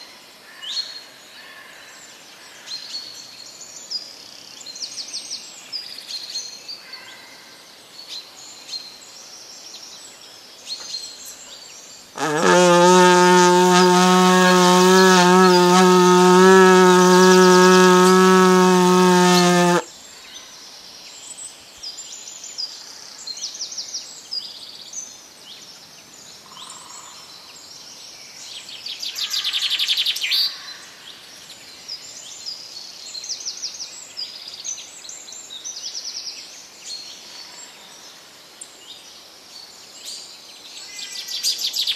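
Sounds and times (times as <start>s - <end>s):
bark horn long low note: 12.2s - 19.9s.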